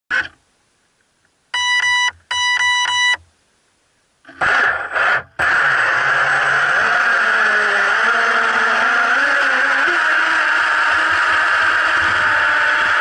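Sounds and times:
electronic beeping: 1.5 - 3.2
model boat motor whining: 4.3 - 13.0.

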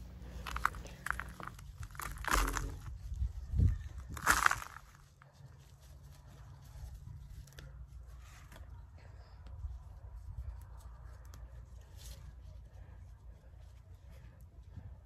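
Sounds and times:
soil crumbling and rustling: 0.0 - 7.6
low steady rumble: 0.0 - 15.0.

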